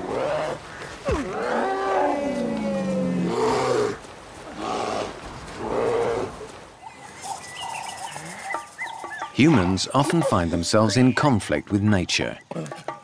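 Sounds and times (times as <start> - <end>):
bear roaring: 0.0 - 6.5.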